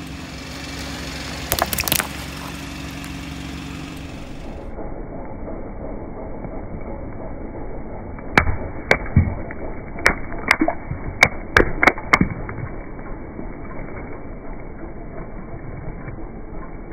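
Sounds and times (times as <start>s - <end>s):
car engine low hum: 0.0s - 16.9s
stress balls popping under tyre: 1.5s - 3.2s, 8.4s - 14.1s.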